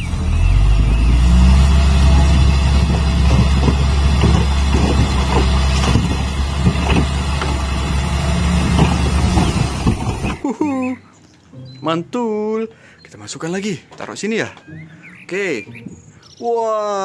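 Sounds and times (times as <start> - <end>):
diesel truck engine running: 0.0 - 10.4
earth and rock sliding out: 1.4 - 10.4.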